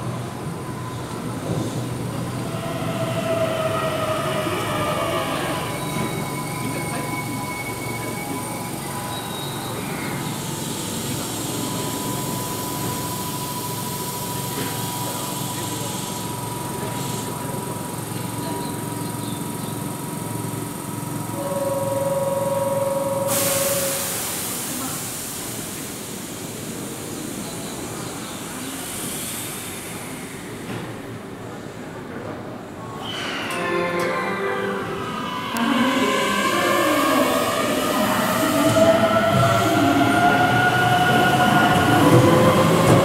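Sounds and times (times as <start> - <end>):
electric train hiss and rumble: 22.8 - 33.4.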